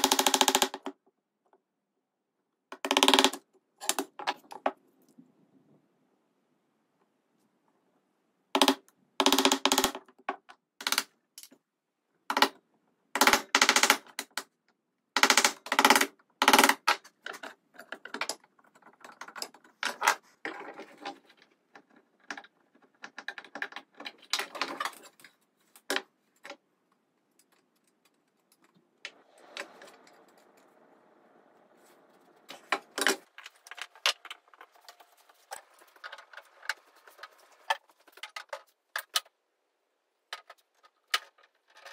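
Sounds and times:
wood pieces and tools clattering: 16.6 - 31.1, 31.8 - 39.4, 40.3 - 41.9.

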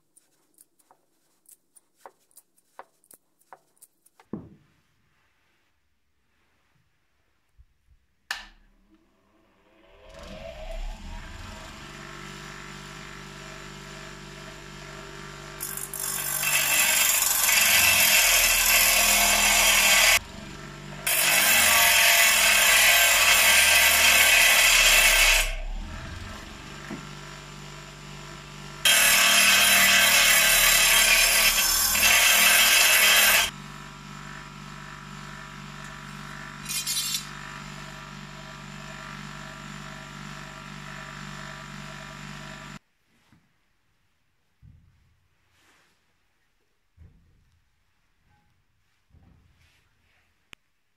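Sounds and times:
bench grinder humming: 9.8 - 42.8.

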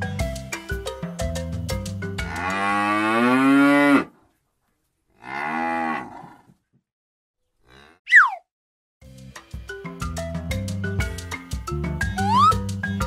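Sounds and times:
cow mooing: 2.3 - 4.1, 5.2 - 6.5.

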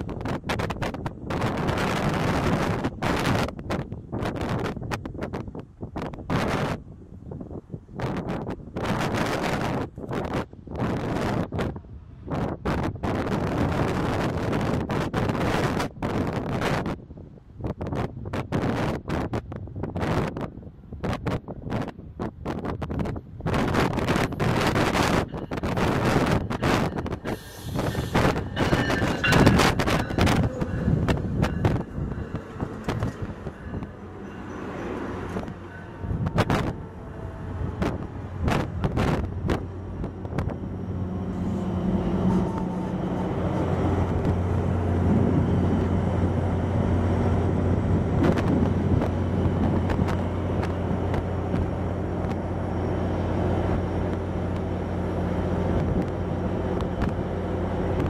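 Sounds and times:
diesel locomotive drone: 0.0 - 58.0
train wheels clicking on rails: 22.5 - 58.0.

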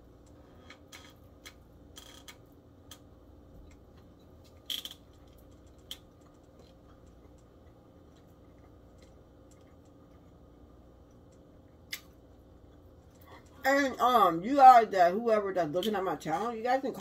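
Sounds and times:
faint clicks and taps of eating: 0.2 - 13.6.

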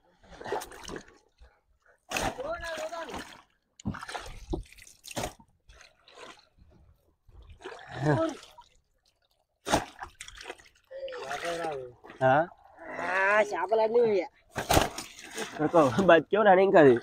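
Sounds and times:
water dripping and splashing: 2.1 - 13.0
wet squelching: 2.1 - 13.0.

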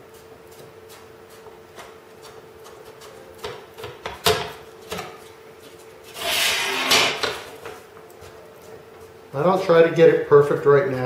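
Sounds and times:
metal scraping rub: 6.1 - 7.4.

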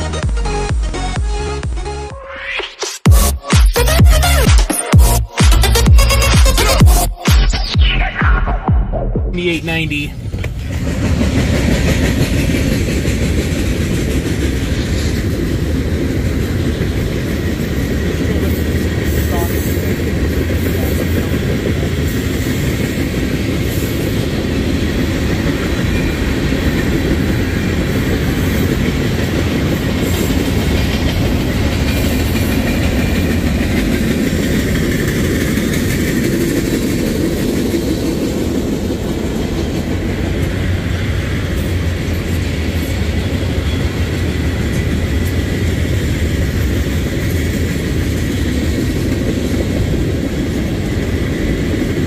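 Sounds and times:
steel wheels rumbling on rails: 9.4 - 52.0.

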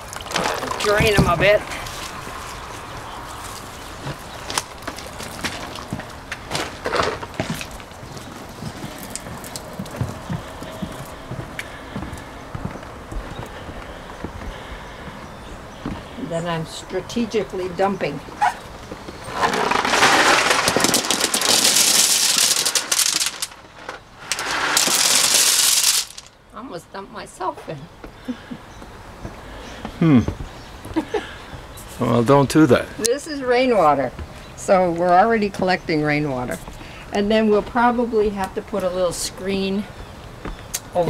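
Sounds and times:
pebbles rattling in plastic bucket: 0.0 - 1.6, 4.4 - 7.9, 19.1 - 26.4
footsteps on wooden deck: 0.8 - 16.6, 18.1 - 19.5, 28.0 - 32.4, 33.7 - 35.2, 39.9 - 40.7.

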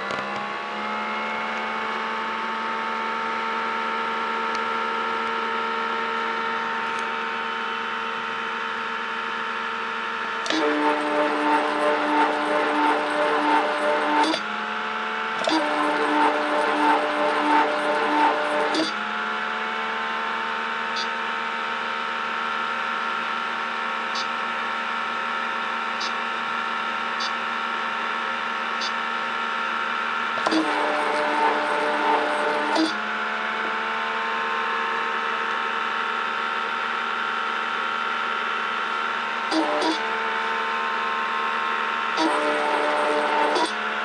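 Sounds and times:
motor hum with fixed tones: 0.0 - 44.0.

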